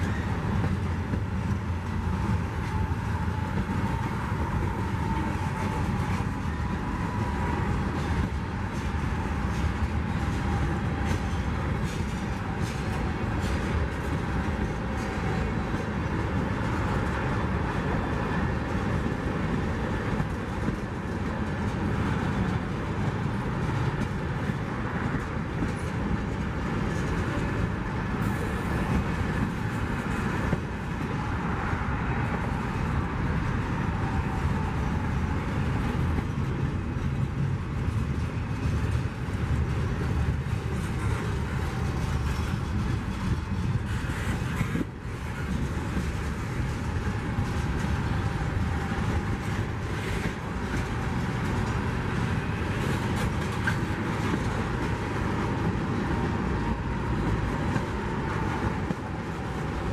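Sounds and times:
rumble of train wheels on rail: 0.0s - 59.9s
wheels clicking over rail joints: 0.0s - 59.9s.

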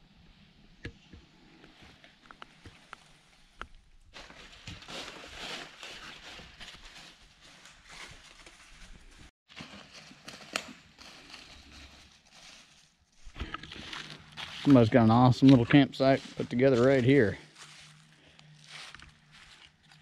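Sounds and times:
footsteps crunching dry leaves: 4.1s - 20.0s.

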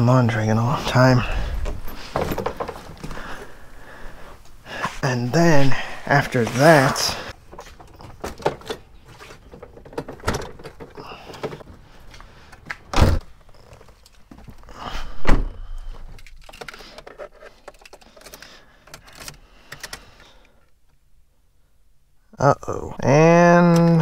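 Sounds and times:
rustling: 1.2s - 5.0s.

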